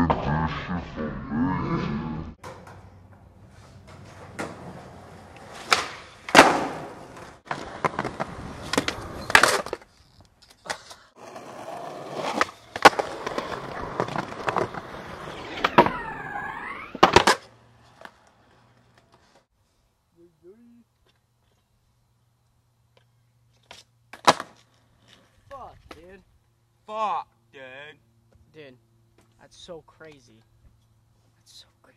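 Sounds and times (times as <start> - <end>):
skateboard wheels rolling on pavement: 1.8 - 19.5, 22.9 - 26.2
skateboard sliding on a ledge: 11.2 - 19.4.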